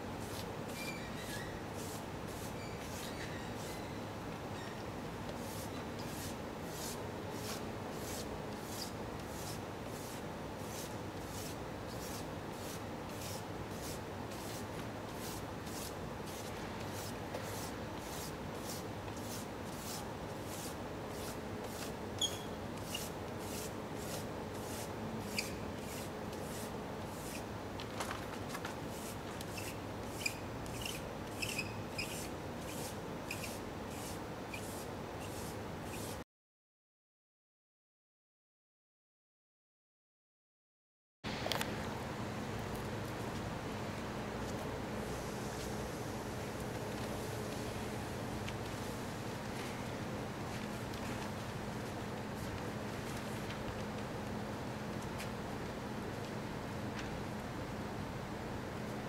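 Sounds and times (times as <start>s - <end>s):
steady background hum: 0.0s - 36.2s, 41.3s - 59.0s
drawing stick scraping paper: 0.2s - 3.9s, 5.3s - 27.5s, 28.9s - 36.2s.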